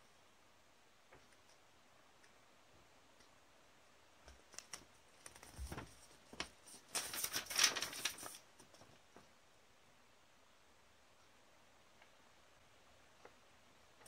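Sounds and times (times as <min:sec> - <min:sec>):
paper rustling and crinkling: 0:04.5 - 0:09.3.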